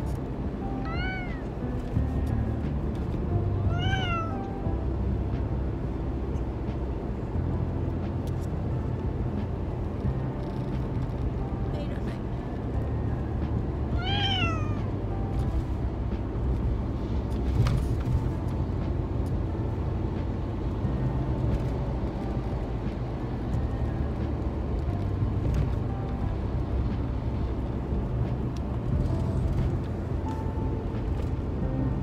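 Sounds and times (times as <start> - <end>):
car rumble inside cabin: 0.0 - 32.0
cat meowing: 0.8 - 1.5, 3.7 - 4.4, 14.0 - 14.9.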